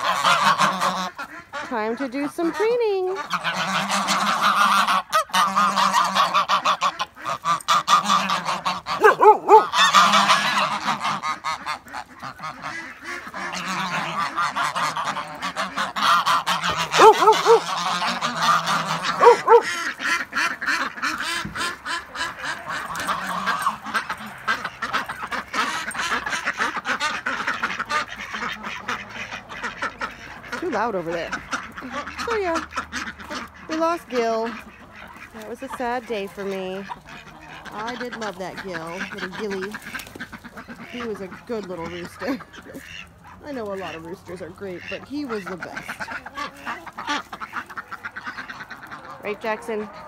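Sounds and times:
geese honking: 0:00.0 - 0:50.0
bills clattering in mud: 0:11.9 - 0:27.8.

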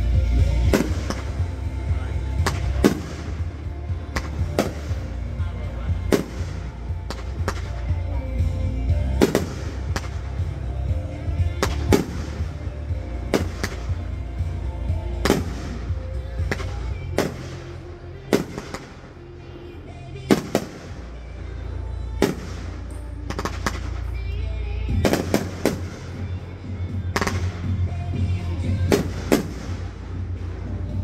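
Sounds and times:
fireworks bangs: 0:00.5 - 0:08.0, 0:09.0 - 0:19.1, 0:22.2 - 0:24.1, 0:24.9 - 0:26.4, 0:27.1 - 0:27.8, 0:28.6 - 0:31.0.

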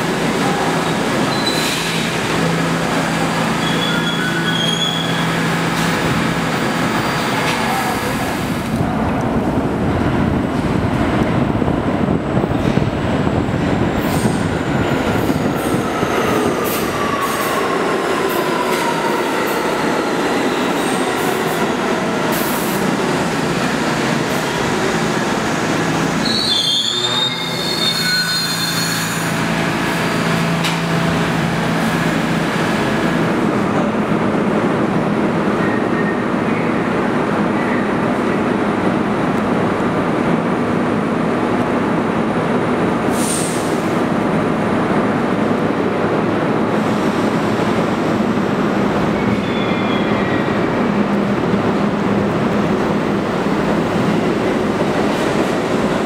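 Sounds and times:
high brake squeal: 0:01.3 - 0:02.0, 0:03.6 - 0:05.4, 0:26.2 - 0:29.3, 0:49.2 - 0:50.6.

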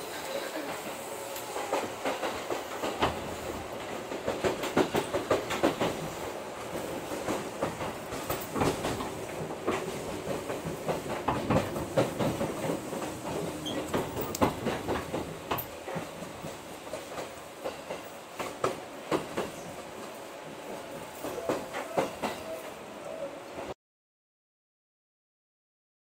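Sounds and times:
train running rumble: 0:00.0 - 0:23.7
wheel clacks over rail joints: 0:01.4 - 0:19.7.

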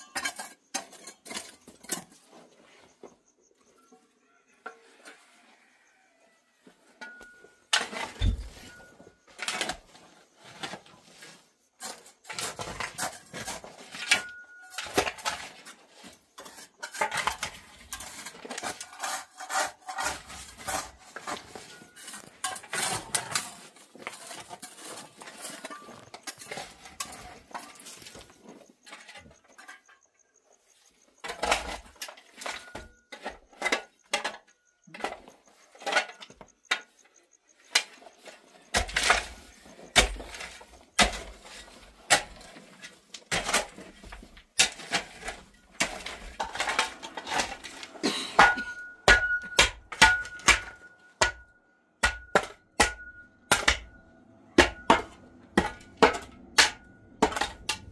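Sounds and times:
hard objects clattering and clinking: 0:00.0 - 0:02.6, 0:07.0 - 0:30.2, 0:37.7 - 0:57.9.

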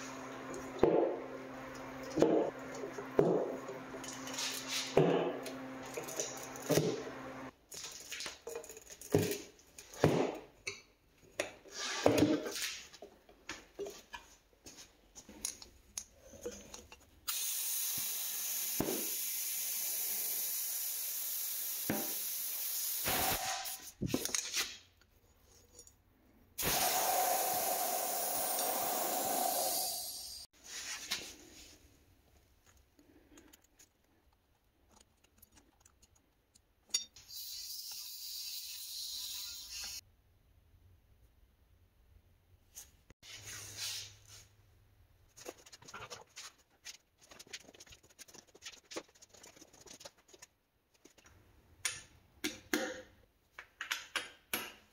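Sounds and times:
compressed air hissing: 0:26.6 - 0:30.5.

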